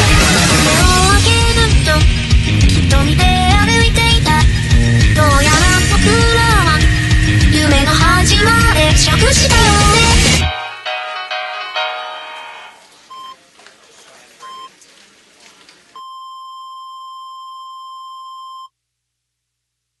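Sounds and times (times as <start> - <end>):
background song: 0.0 - 12.9
long steady beep: 16.0 - 18.7.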